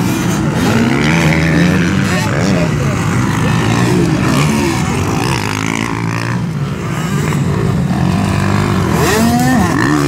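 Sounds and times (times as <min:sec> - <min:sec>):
dirt bike engines revving: 0:00.0 - 0:10.0.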